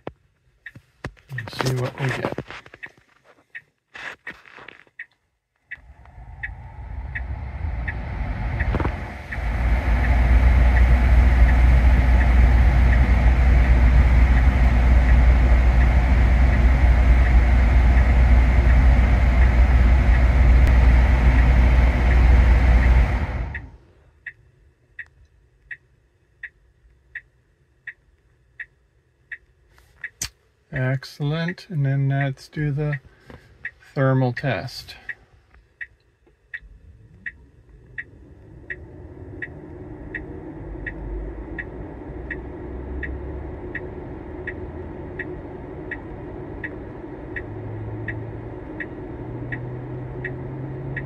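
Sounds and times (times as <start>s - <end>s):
light ticking: 5.0s - 8.0s, 8.6s - 21.5s, 23.5s - 51.0s
air blower rushing: 5.8s - 23.8s.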